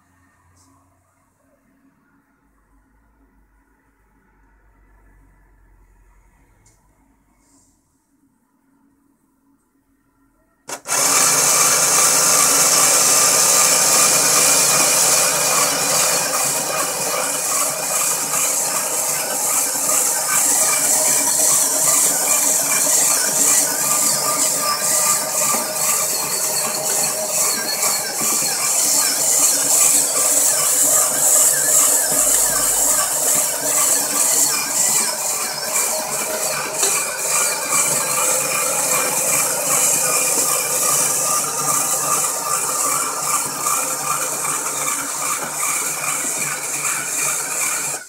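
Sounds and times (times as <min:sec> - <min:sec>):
electric motors whining: 0:10.7 - 0:48.0
knitting machine mechanism: 0:10.7 - 0:48.0.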